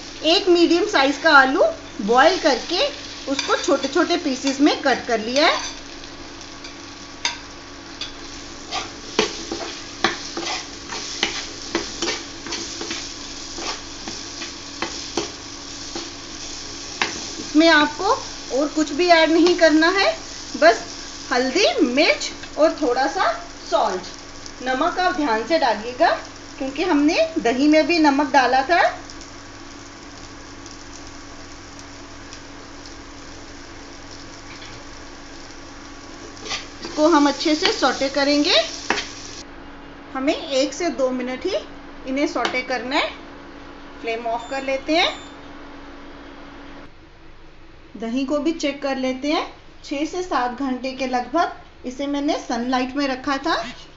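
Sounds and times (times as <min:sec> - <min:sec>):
potatoes sizzling in hot oil: 0:00.0 - 0:39.5
metal spoon scraping pan: 0:08.0 - 0:15.3.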